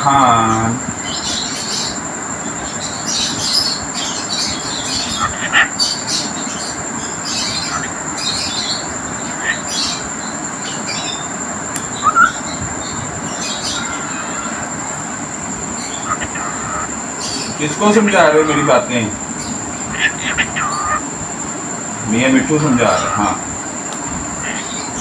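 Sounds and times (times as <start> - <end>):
background hiss: 0.0 - 25.0
thin high whine: 0.0 - 25.0
cockatiel chirping: 2.6 - 21.0, 24.4 - 25.0.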